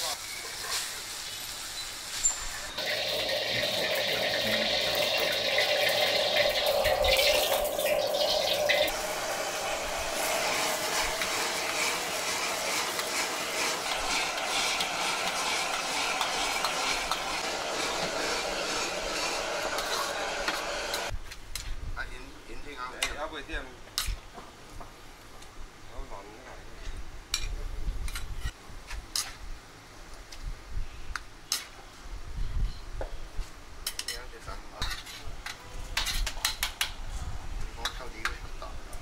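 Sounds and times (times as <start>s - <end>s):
food sizzling: 0.0s - 21.2s
soup boiling in a pot: 2.7s - 21.1s
metal spatula scraping a wok: 10.1s - 21.1s, 34.8s - 35.3s.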